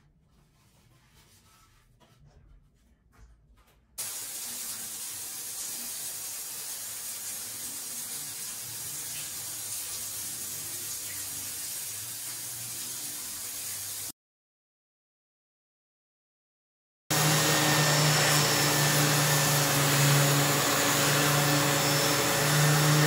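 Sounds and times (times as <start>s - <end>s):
shower water hissing: 4.0s - 14.1s.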